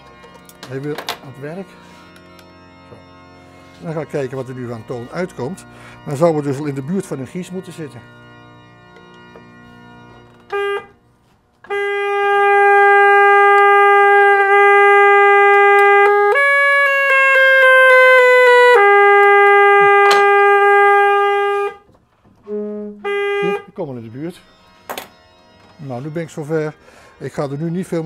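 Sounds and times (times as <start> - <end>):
organ reed pipe tone: 0.0 - 28.0.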